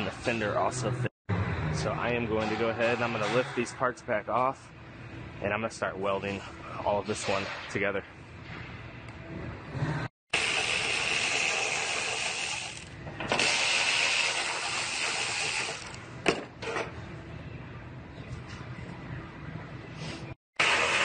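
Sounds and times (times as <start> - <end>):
power tool whining on sheet metal: 10.3 - 16.0.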